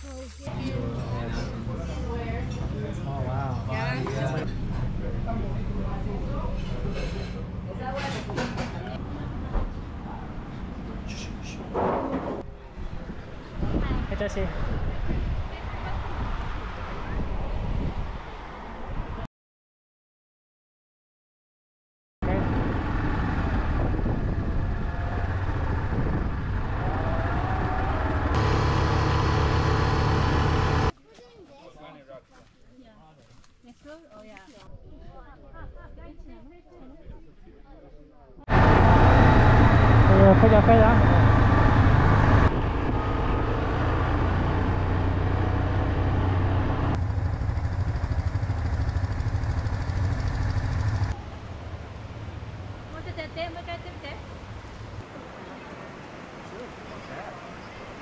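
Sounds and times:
quad bike engine running: 38.5s - 51.2s.

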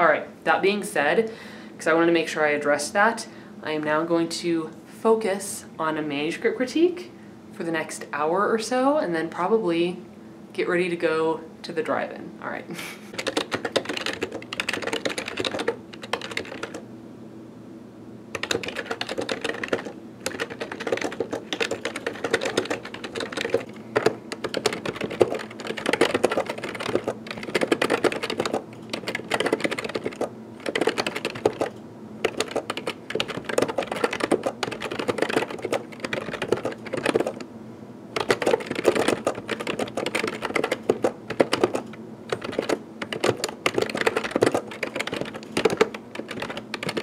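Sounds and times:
fast keyboard typing: 13.1s - 16.8s, 18.3s - 37.5s, 38.2s - 47.0s.

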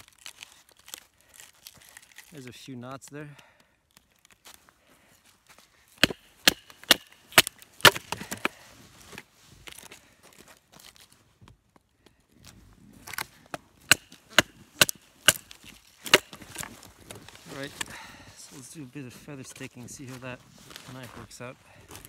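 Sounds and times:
knife chopping wooden stick: 6.0s - 8.6s, 13.9s - 16.7s.

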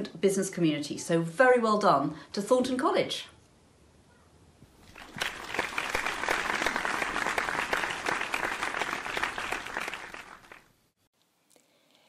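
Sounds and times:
crowd applauding: 4.8s - 10.7s.

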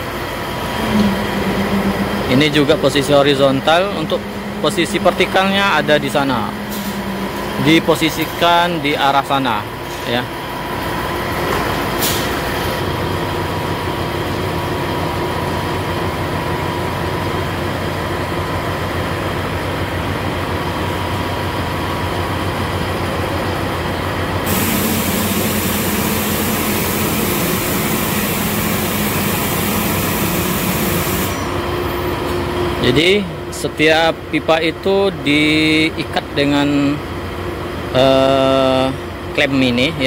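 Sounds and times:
hum: 0.0s - 8.0s
heavy machinery engine droning: 0.0s - 40.0s
hiss: 24.5s - 31.6s.

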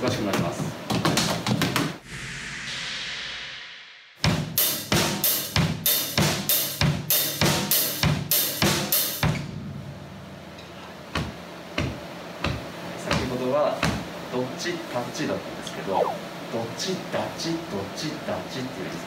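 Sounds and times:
cymbal swish: 2.0s - 4.9s.

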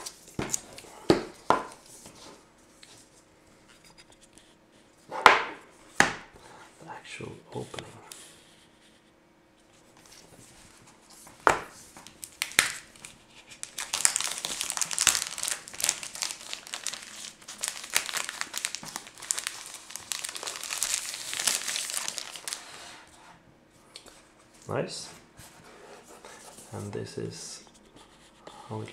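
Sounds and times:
plastic crinkling: 11.9s - 23.0s
plastic shrink-wrap tearing: 12.0s - 22.9s.

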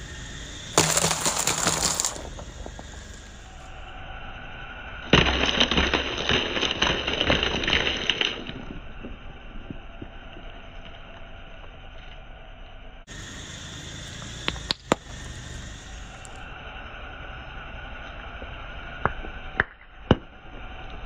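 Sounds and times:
eggs crunching under a tyre: 0.0s - 3.8s, 5.1s - 9.1s, 13.1s - 16.4s.

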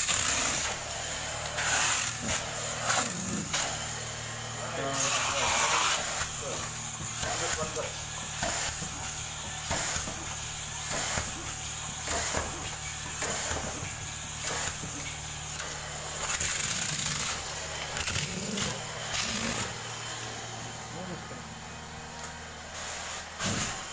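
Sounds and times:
vacuum motor whining: 0.0s - 23.9s
suction rushing and slurping: 16.1s - 19.9s.

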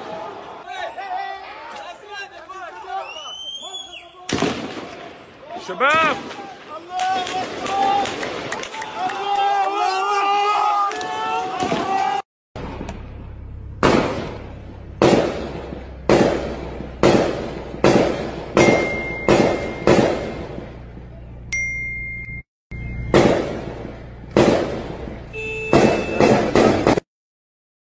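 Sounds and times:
gunshots with echoing tail: 4.3s - 5.2s, 13.8s - 20.8s, 23.1s - 27.0s
car engine humming: 12.6s - 26.1s.

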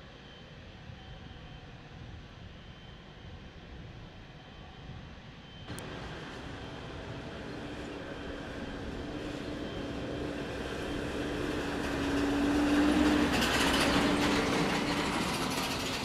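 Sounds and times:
jet engine crackle: 5.7s - 16.0s
jet engine roar passing by: 5.7s - 16.0s.

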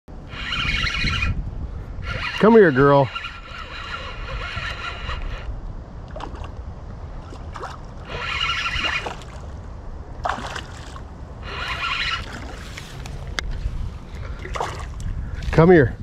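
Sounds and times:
spinning reel whirring: 0.2s - 1.4s, 2.0s - 5.5s, 8.1s - 9.1s, 11.4s - 12.3s.

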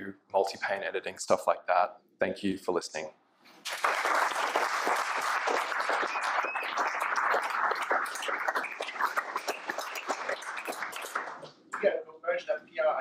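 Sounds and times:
audience applauding: 3.6s - 11.5s.

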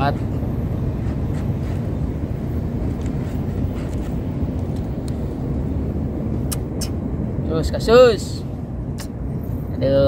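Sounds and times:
low rumbling background noise: 0.0s - 10.0s.

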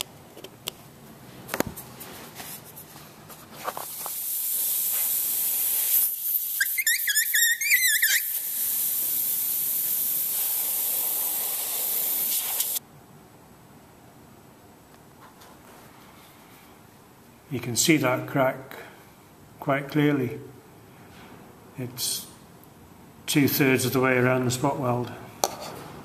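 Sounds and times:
gas hissing from leak: 3.8s - 12.8s
wavering squeal: 6.6s - 8.4s.

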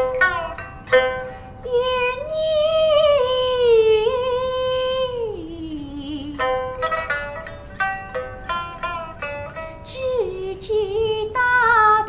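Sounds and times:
pipa plucking: 0.0s - 12.0s
woman singing: 1.6s - 6.7s, 9.8s - 12.0s.

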